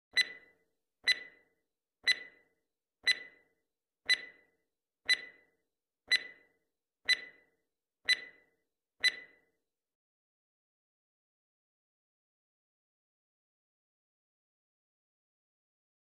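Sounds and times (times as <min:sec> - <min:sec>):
stopwatch ticking: 0:00.1 - 0:09.4.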